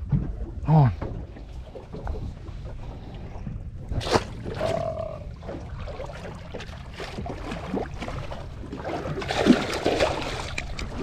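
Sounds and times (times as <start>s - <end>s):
water lapping against a boat: 0.0s - 11.0s
loud splash: 8.8s - 10.6s.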